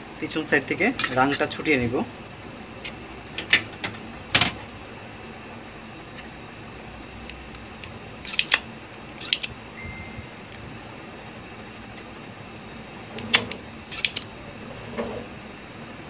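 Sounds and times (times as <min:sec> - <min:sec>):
tools clicking on circuit board: 0:08.3 - 0:08.6, 0:13.3 - 0:14.2.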